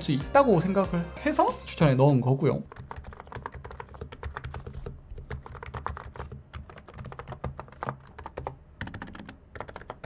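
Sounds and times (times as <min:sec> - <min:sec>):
fast keyboard typing: 0:02.7 - 0:10.0.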